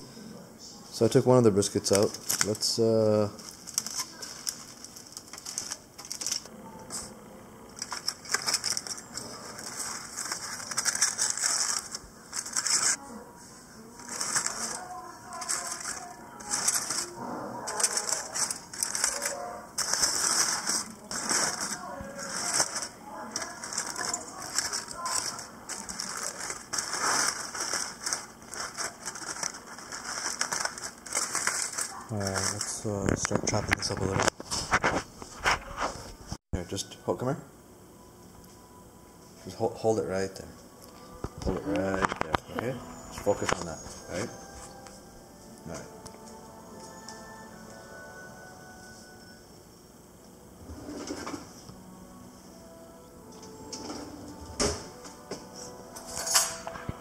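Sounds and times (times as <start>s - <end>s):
aluminium foil crinkling: 1.1s - 7.1s, 7.7s - 36.0s.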